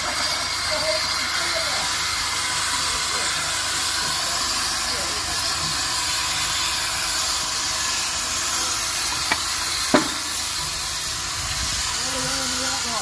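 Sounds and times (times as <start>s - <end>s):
steam locomotive hissing: 0.0s - 13.0s
sharp knocks: 9.3s - 10.3s.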